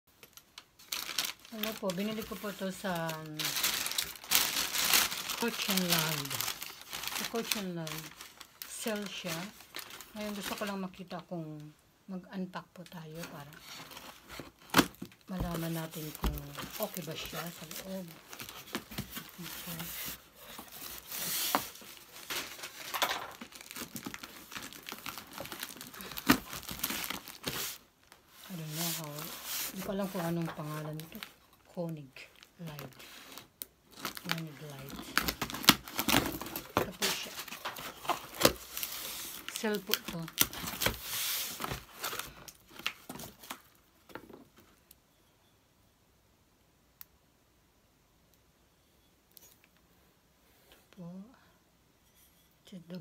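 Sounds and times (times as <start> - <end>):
cardboard crinkles and scrapes: 0.8 - 10.7, 13.3 - 31.4, 32.7 - 43.6.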